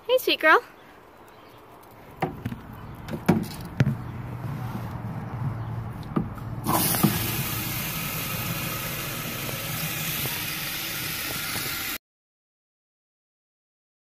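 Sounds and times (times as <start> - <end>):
hose water running into bucket: 6.6 - 12.0.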